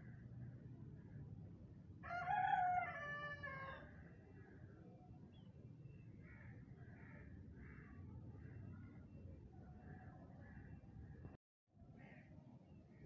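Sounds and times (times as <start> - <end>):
rooster crowing: 2.0 - 3.8.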